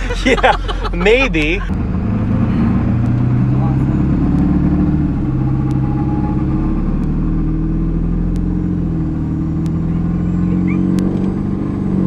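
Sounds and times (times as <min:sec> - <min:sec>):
truck engine drone: 0:00.0 - 0:12.0.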